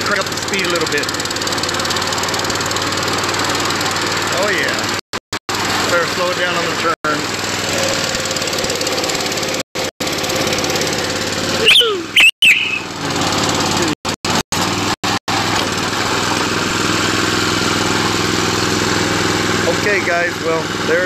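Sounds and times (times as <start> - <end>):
miniature locomotive running: 0.0 - 4.8
high-pitched squeaks: 11.6 - 12.9.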